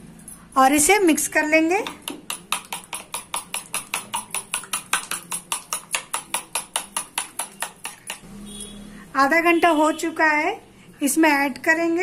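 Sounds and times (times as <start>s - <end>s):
spoon beating eggs in plastic bowl: 1.4s - 8.2s.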